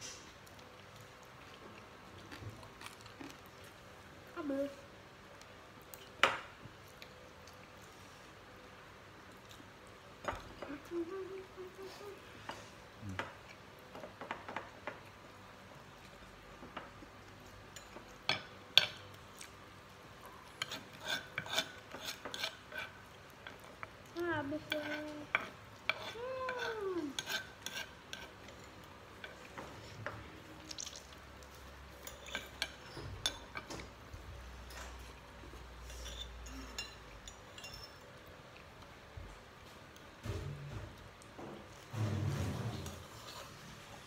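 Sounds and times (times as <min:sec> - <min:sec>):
spoon scraping in a pot: 0:20.6 - 0:23.0, 0:24.6 - 0:28.8, 0:35.8 - 0:38.0.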